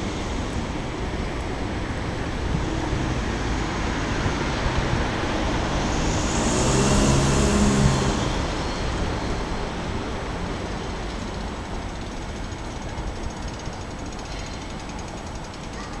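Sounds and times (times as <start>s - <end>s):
road traffic rumbling: 0.0s - 16.0s
vehicle passing close: 2.5s - 10.6s.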